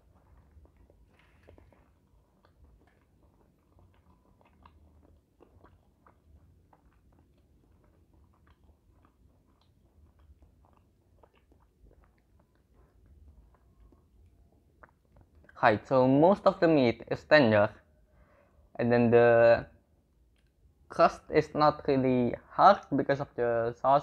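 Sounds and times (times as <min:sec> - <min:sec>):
wet chewing clicks: 0:00.0 - 0:16.8, 0:20.2 - 0:21.8
low room hum: 0:00.0 - 0:24.0.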